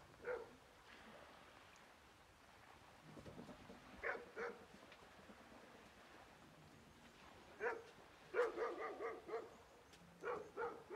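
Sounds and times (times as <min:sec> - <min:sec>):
dog barking: 0:00.2 - 0:00.5, 0:04.0 - 0:04.6, 0:07.6 - 0:09.5, 0:10.2 - 0:10.9.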